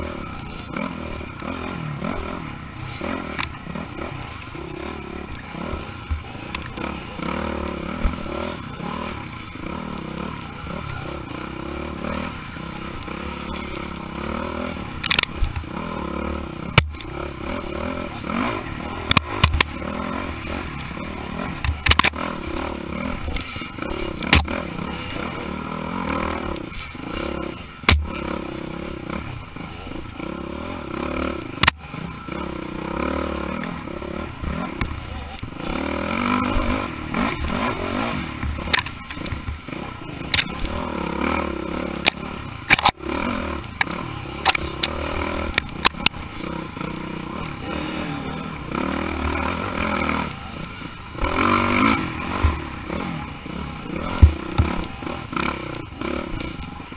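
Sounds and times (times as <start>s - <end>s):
dirt bike engine revving: 0.0s - 56.9s
bike knocks and clatters: 19.0s - 19.8s, 21.6s - 22.2s, 24.2s - 24.6s, 38.4s - 39.7s, 54.0s - 55.0s.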